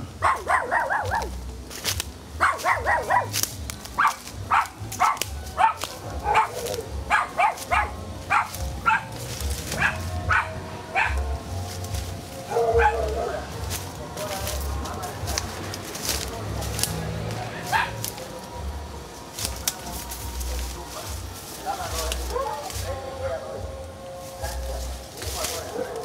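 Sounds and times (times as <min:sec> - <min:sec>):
dog barking: 0:00.2 - 0:01.4, 0:02.4 - 0:03.4, 0:04.0 - 0:11.2, 0:12.4 - 0:13.6, 0:17.7 - 0:18.0, 0:22.3 - 0:23.6, 0:24.4 - 0:26.0.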